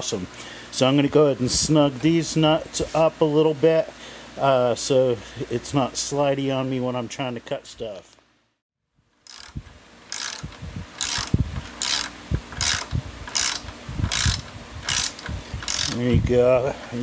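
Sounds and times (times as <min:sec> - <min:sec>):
socket ratchet clicking: 0:09.2 - 0:16.0.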